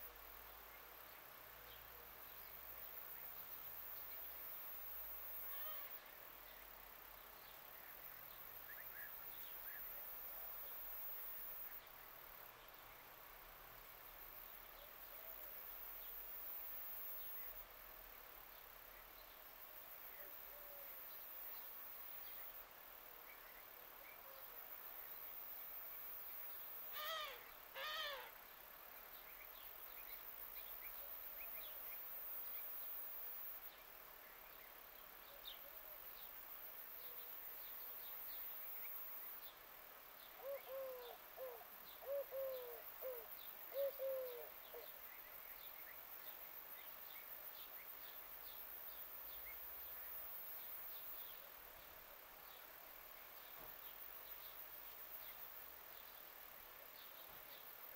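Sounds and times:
loud bird calls: 26.9 - 28.4
low hoot-like bird calls: 27.0 - 28.3, 40.4 - 44.9.

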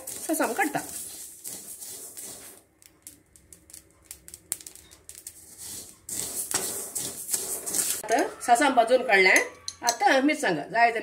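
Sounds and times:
mustard seeds popping: 0.0 - 8.0
wooden spatula stirring: 0.0 - 8.3.

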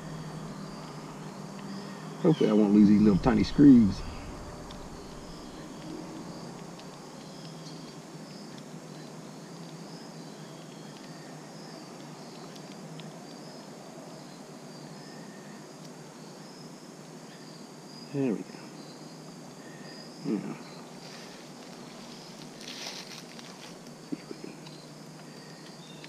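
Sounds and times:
crickets chirping: 0.0 - 26.0.

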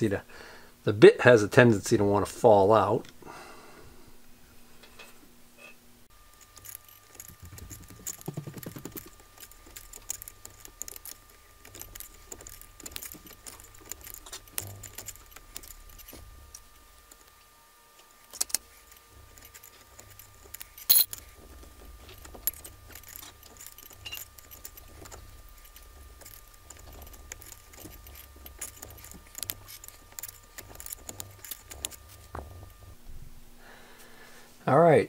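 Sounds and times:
small metal tools clicking: 6.3 - 17.3, 18.3 - 32.3.

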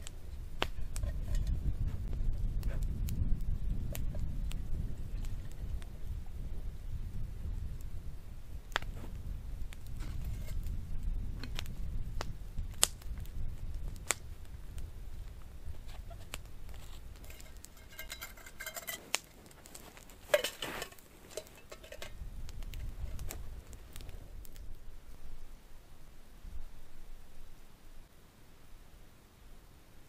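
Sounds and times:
wind rumble on microphone: 0.0 - 25.6
metal cookware clinking and scraping: 17.2 - 19.2, 20.2 - 22.2.

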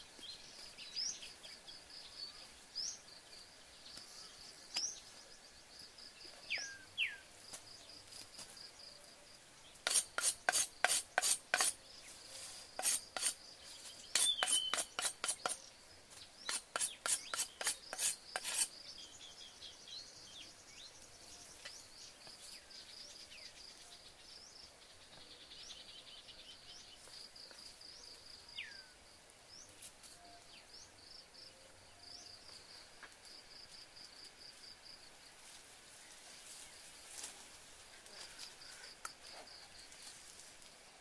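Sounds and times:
insects chirping: 0.2 - 40.4
bird calls: 12.8 - 15.8.

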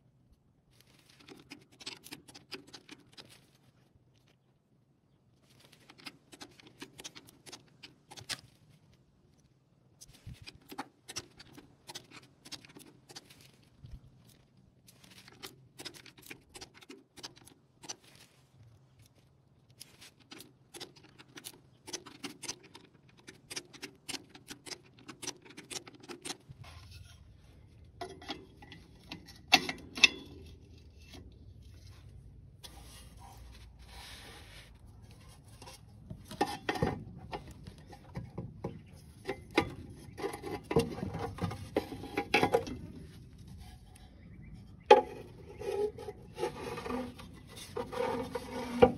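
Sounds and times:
metal knocks and scraping: 26.5 - 31.9, 35.0 - 48.9.

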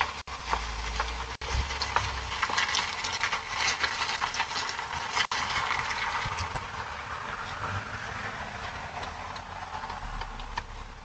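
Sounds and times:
car engine idling: 5.7 - 11.0.

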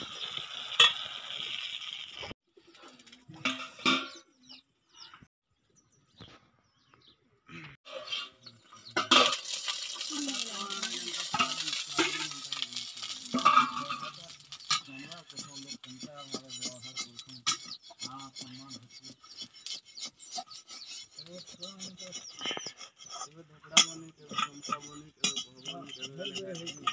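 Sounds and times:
pancake sizzling in pan: 0.0 - 2.3, 9.0 - 15.6.

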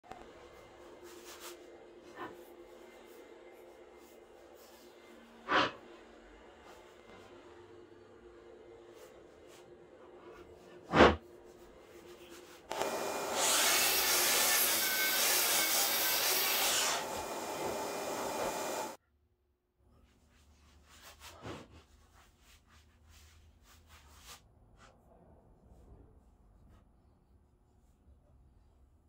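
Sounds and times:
miter saw cutting wood: 12.7 - 19.0.

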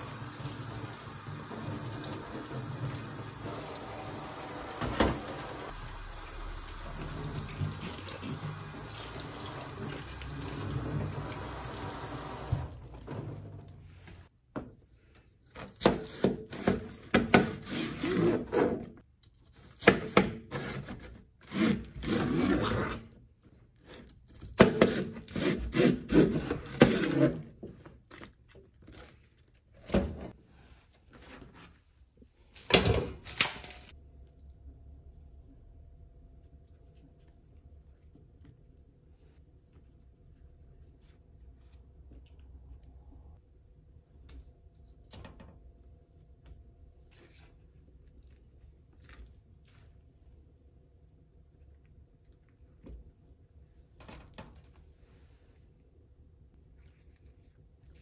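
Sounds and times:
tap water running in sink: 0.0 - 13.5.

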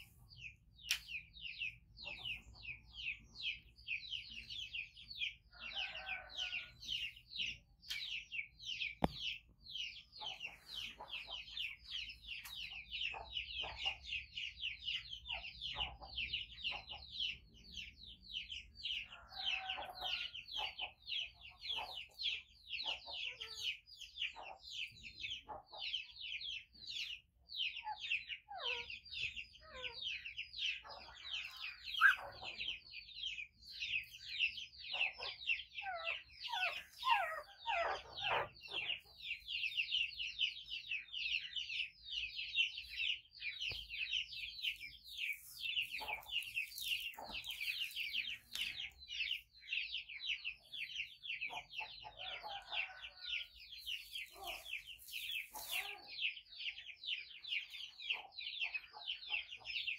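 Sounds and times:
rapid high-pitched chirping: 20.6 - 59.9.

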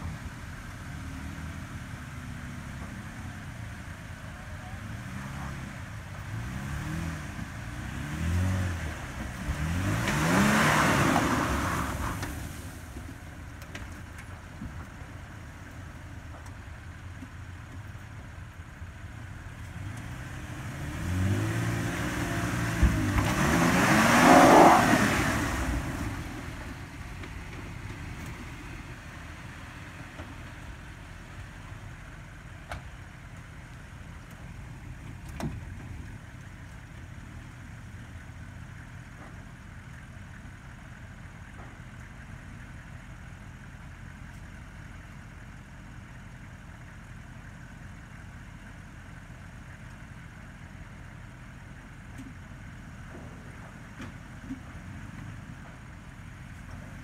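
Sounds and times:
tires churning sand: 0.0 - 57.0
pickup engine revving: 4.6 - 13.1, 19.6 - 31.8.

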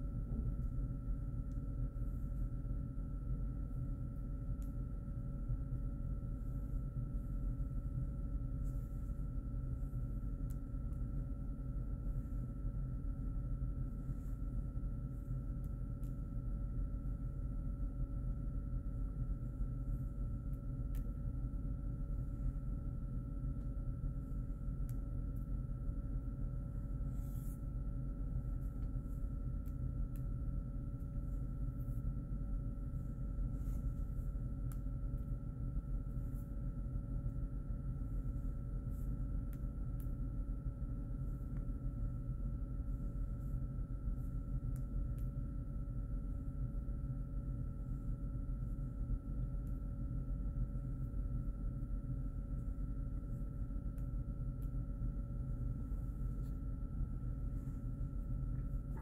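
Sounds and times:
faint whining tones: 0.0 - 59.0
low room hum: 0.0 - 59.0.

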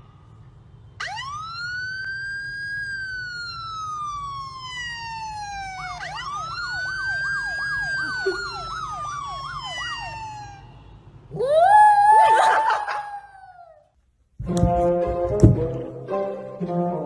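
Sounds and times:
wailing siren from phone speaker: 1.0 - 10.9
yelping siren: 1.0 - 13.9.

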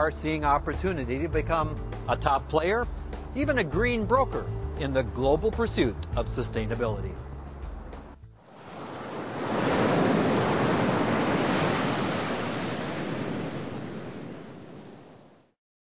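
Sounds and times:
surf breaking: 7.9 - 15.3.

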